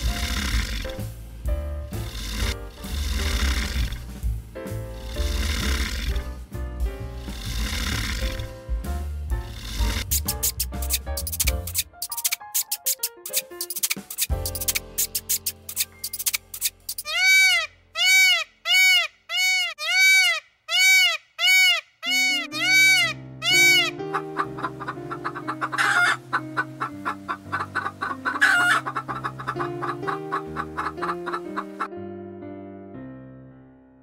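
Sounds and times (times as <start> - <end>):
music: 0.0 - 17.0, 22.1 - 34.0
small birds chirping: 9.8 - 31.9
peafowl calling: 16.9 - 31.9.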